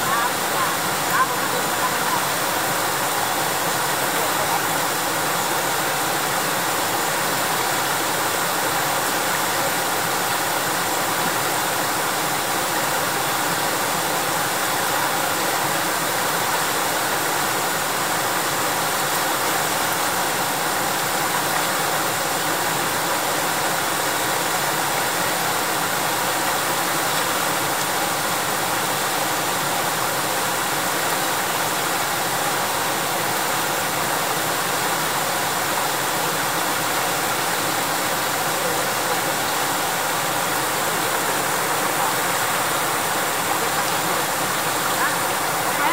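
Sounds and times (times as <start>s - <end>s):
river water rushing over rapids: 0.0s - 45.9s.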